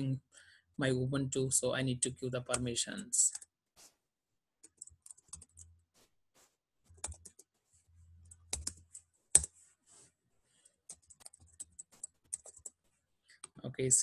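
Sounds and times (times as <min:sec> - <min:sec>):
keyboard typing: 0:04.6 - 0:05.7, 0:06.9 - 0:07.5, 0:08.2 - 0:09.6, 0:10.8 - 0:12.8.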